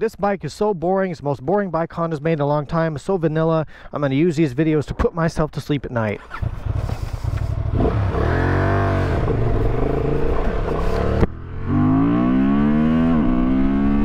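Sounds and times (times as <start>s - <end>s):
motorcycle engine accelerating hard: 6.3s - 14.0s.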